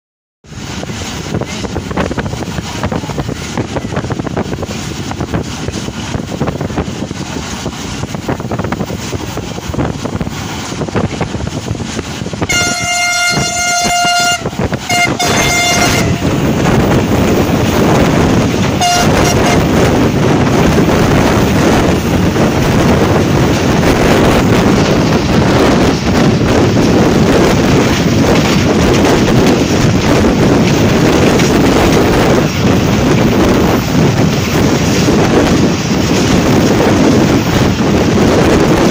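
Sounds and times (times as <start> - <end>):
rushing wind: 0.4 - 38.9
train wheels rumbling on rails: 0.4 - 38.9
locomotive horn blasts: 12.4 - 16.4, 18.8 - 19.8.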